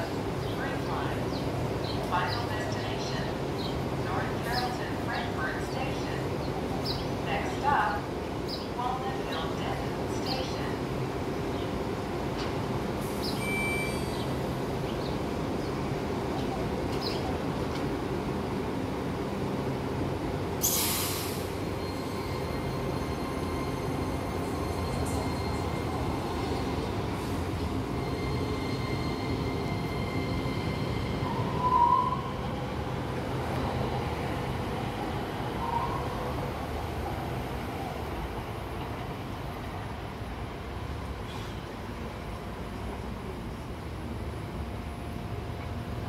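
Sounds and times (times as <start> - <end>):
train wheel noise on rails: 0.0 - 46.0
loud hiss: 20.6 - 21.6.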